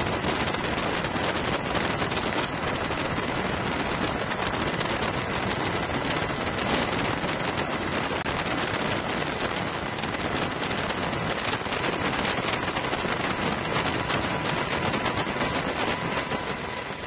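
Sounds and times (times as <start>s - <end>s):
steady hiss with crackle: 0.0s - 17.0s.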